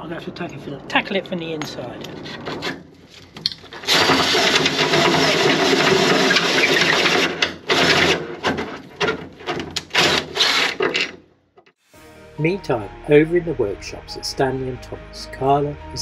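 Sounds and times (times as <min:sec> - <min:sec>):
cordless drill drilling into wood: 0:03.8 - 0:08.2, 0:09.9 - 0:11.1.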